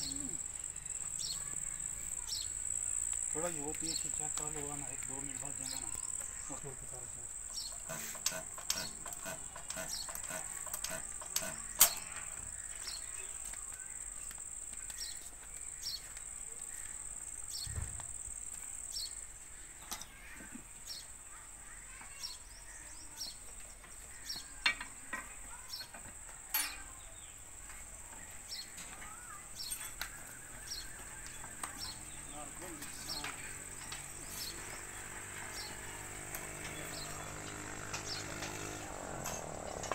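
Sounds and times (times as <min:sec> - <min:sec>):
insect chirring: 0:00.0 - 0:13.4.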